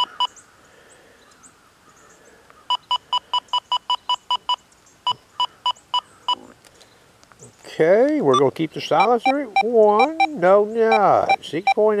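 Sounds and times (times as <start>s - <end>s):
metal detector keypress beeps: 0.0s - 0.3s, 2.7s - 6.4s, 8.3s - 11.9s.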